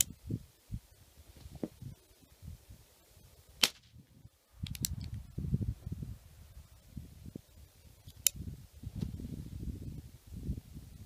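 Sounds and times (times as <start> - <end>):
air pistol shot: 3.6 - 3.9.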